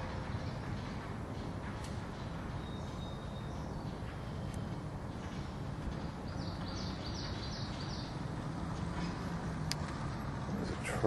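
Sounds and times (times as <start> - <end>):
road traffic rumble: 0.0 - 11.0
bird chirping: 2.1 - 8.4.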